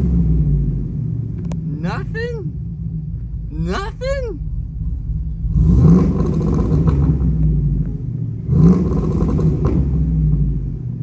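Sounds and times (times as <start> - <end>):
engine revving on rev limiter: 5.4 - 10.6.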